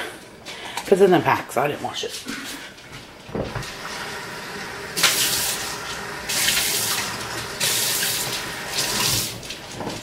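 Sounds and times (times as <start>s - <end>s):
tap water running: 3.5s - 10.0s.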